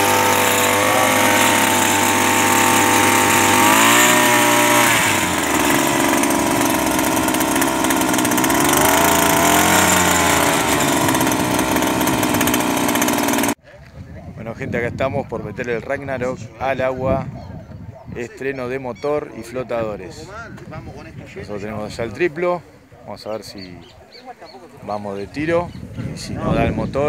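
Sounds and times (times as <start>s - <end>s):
outboard motor revving: 0.0s - 13.6s.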